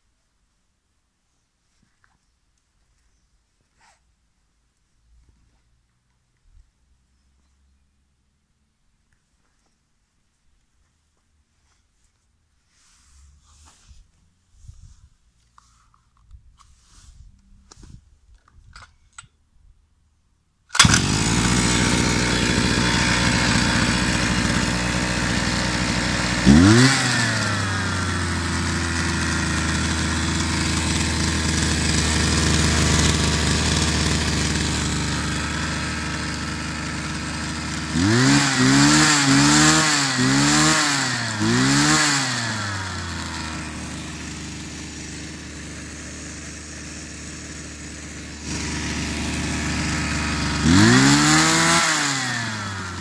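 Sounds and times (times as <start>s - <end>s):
brush cutter engine idling: 20.7s - 53.0s.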